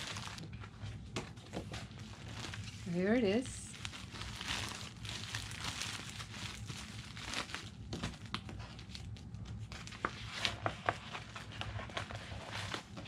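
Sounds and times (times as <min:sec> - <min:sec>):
plastic bag crinkling: 0:00.0 - 0:00.5, 0:01.9 - 0:09.1.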